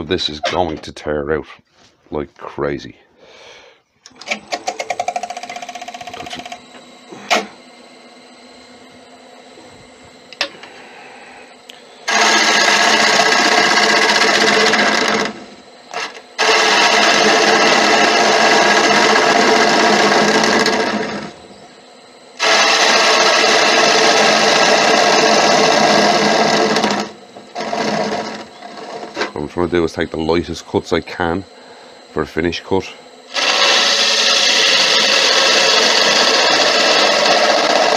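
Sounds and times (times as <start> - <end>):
lathe running: 4.0 - 37.9
turning tool cutting wood: 4.1 - 7.6, 12.0 - 21.5, 22.4 - 30.4, 33.3 - 37.9.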